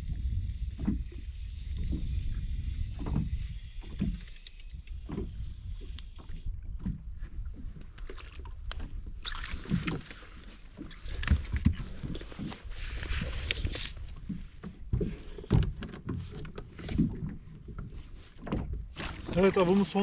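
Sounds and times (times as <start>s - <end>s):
wind on microphone: 0.0s - 15.8s
water slapping against hull: 0.0s - 20.0s.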